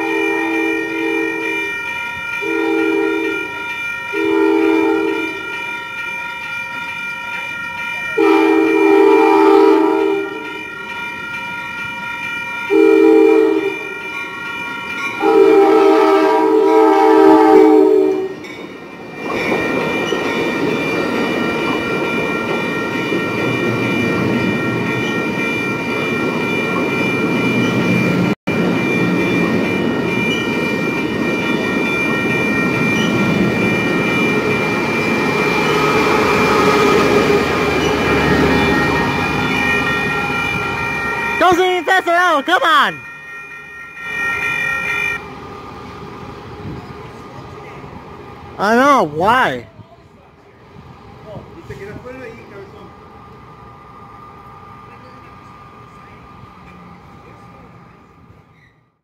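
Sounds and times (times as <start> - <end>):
train horn: 0.0 - 1.7, 2.4 - 5.5, 8.2 - 10.6, 12.7 - 13.9, 15.2 - 18.4, 35.6 - 40.5
train wheels rumbling on rail: 0.0 - 41.5, 45.2 - 48.6, 49.6 - 58.8.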